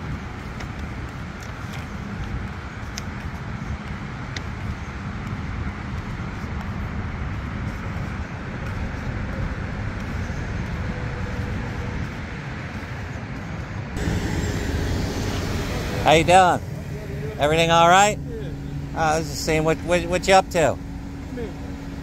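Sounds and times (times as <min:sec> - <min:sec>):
road rumble: 0:00.0 - 0:22.0
car engine running: 0:14.0 - 0:22.0.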